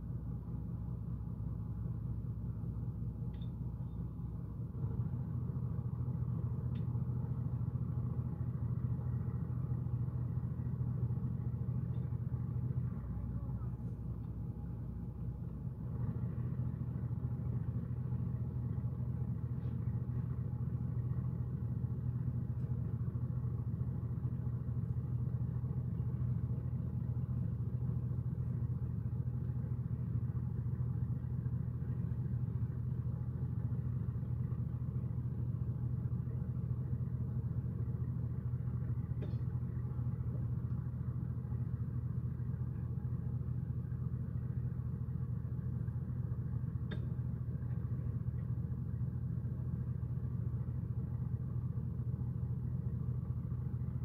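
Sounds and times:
low mechanical hum: 0:00.0 - 0:54.0
faint clicks: 0:46.9 - 0:47.2.

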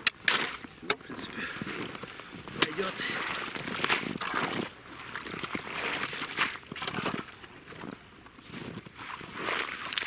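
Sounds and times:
shovel scraping and sloshing slush: 0:00.2 - 0:00.7, 0:02.6 - 0:10.0.

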